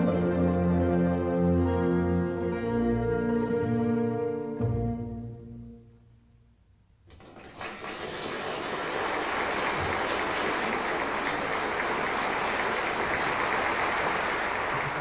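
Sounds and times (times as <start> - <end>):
music: 0.0 - 6.6
audience applauding: 7.1 - 15.0.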